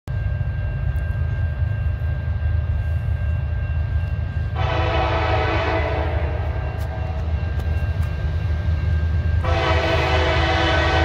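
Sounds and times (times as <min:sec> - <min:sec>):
crossing bell ringing: 0:00.1 - 0:11.0
low locomotive rumble: 0:00.1 - 0:11.0
locomotive air horn blast: 0:04.5 - 0:06.5, 0:09.4 - 0:11.0.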